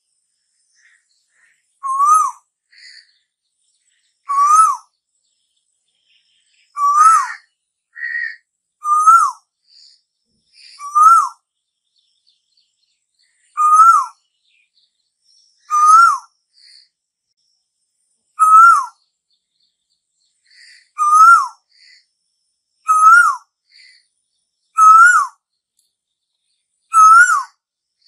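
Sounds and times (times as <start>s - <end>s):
bird whistled call: 1.8s - 3.2s, 4.2s - 4.9s, 6.7s - 9.9s, 10.6s - 11.4s, 13.5s - 14.2s, 15.6s - 16.8s, 18.4s - 19.0s, 20.6s - 22.0s, 22.8s - 24.0s, 24.7s - 25.4s, 26.9s - 27.6s.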